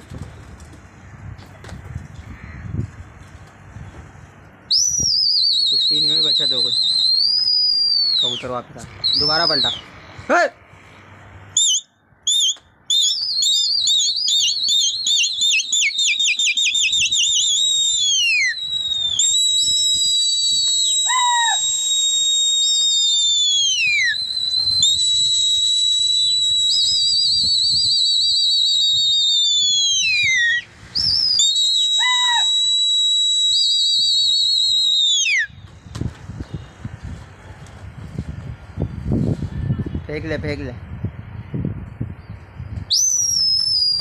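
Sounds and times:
person whistling shrilly: 0:04.7 - 0:09.8, 0:11.6 - 0:35.6, 0:42.9 - 0:44.0.

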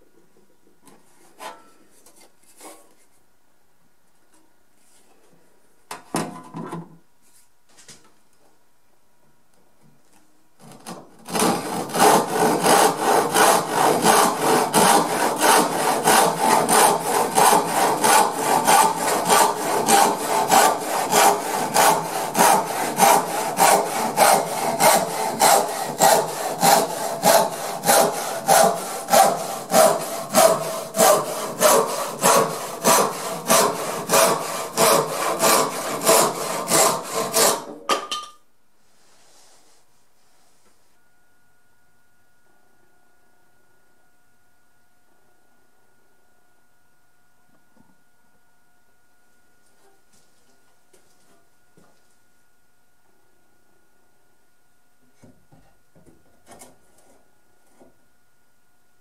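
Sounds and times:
hand saw sawing wood: 0:11.3 - 0:37.8.

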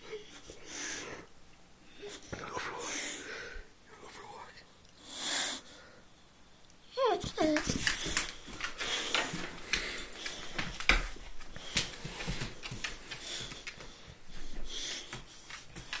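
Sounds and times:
dog breathing and sniffing: 0:07.1 - 0:16.0
scuffling: 0:07.2 - 0:16.0.

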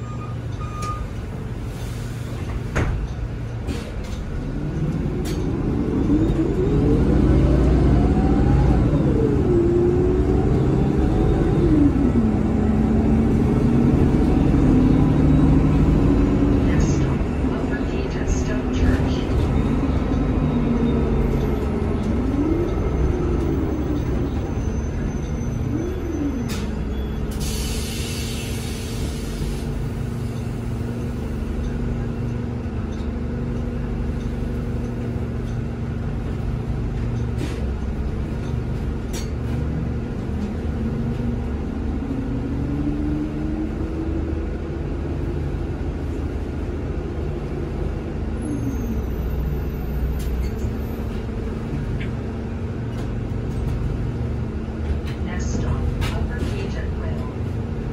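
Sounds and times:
bus engine rumble: 0:00.0 - 0:57.9
air hissing: 0:27.3 - 0:29.8.

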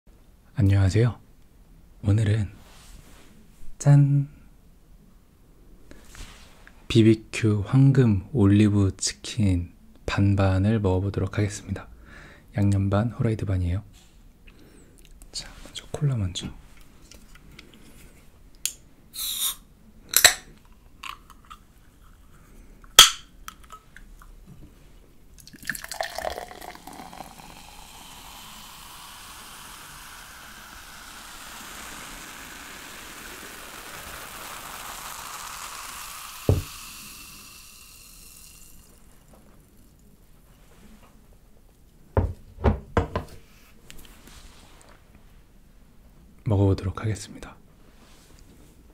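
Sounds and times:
can cracked open with hiss: 0:19.2 - 0:20.4, 0:26.2 - 0:39.4
cola fizzing in a glass: 0:25.4 - 0:40.2
dull knock: 0:42.2 - 0:43.3.

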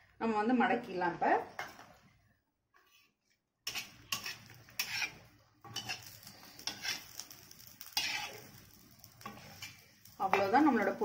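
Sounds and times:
metal spatula scraping iron griddle: 0:02.8 - 0:11.0.

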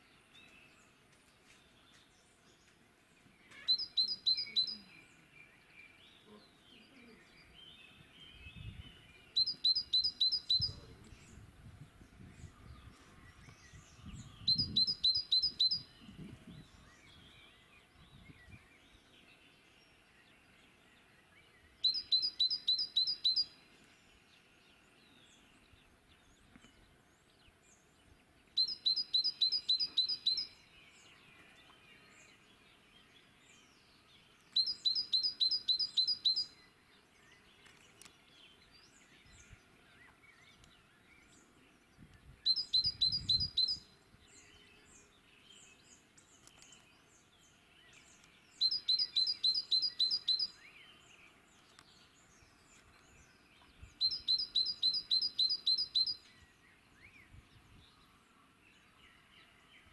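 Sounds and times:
small birds chirping: 0:00.0 - 0:59.9
songbird singing: 0:00.0 - 0:59.9.

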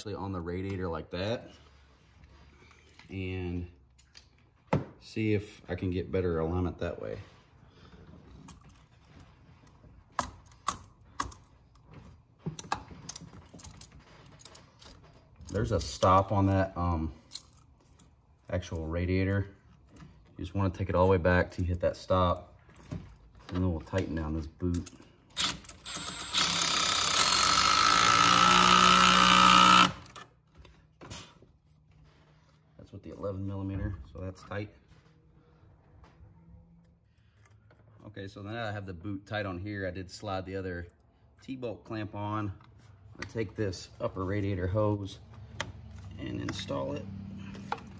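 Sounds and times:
clicks and knocks of rubber hose fitting: 0:08.3 - 0:16.5
power driver running: 0:25.8 - 0:30.1.

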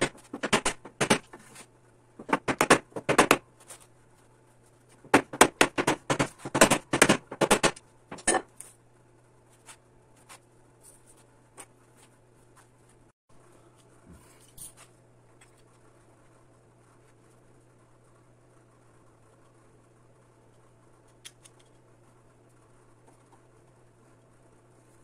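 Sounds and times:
hammer tapping wood: 0:05.1 - 0:07.8.

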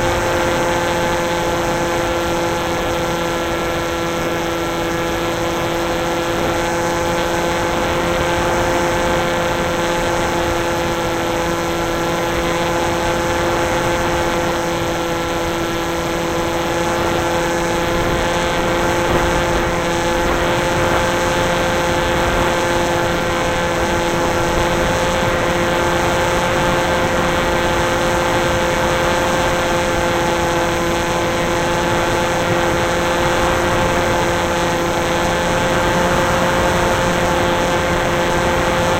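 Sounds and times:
drone motor and propeller hum: 0:00.0 - 0:38.9
wind noise on microphone: 0:00.0 - 0:38.9.

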